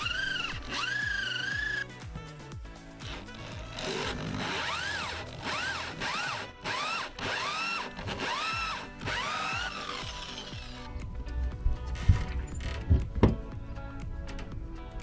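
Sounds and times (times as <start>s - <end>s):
electric drill whining: 0.0s - 2.2s, 3.0s - 11.0s.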